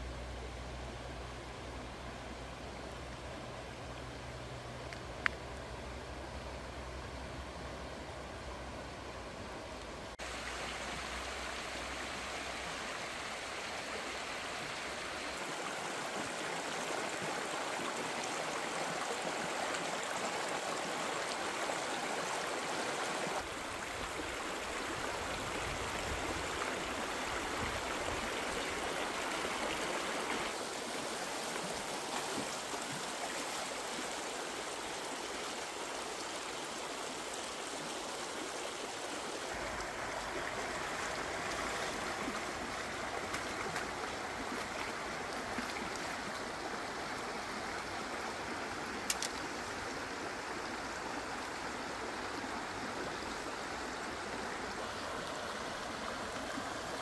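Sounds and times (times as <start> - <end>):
stream rushing over rocks: 8.7 - 57.0.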